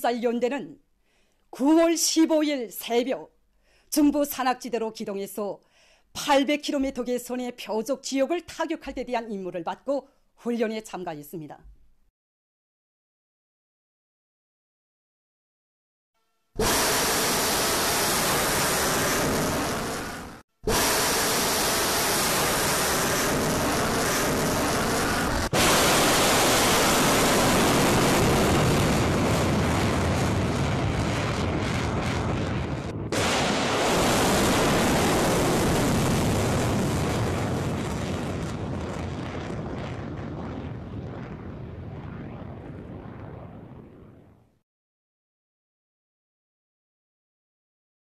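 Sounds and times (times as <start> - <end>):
rocket motor rushing: 16.6 - 38.1.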